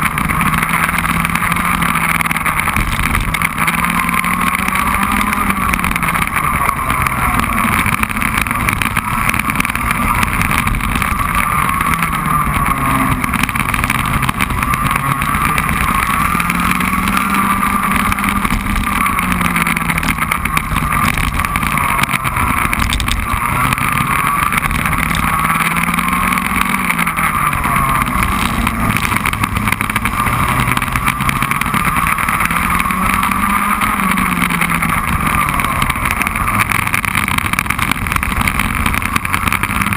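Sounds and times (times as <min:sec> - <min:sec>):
kart engine revving: 0:00.0 - 0:39.9.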